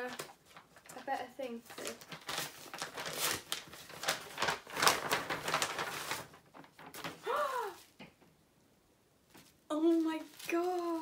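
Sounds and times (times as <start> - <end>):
packaging rustling and crinkling: 0.0 - 7.9, 9.3 - 11.0.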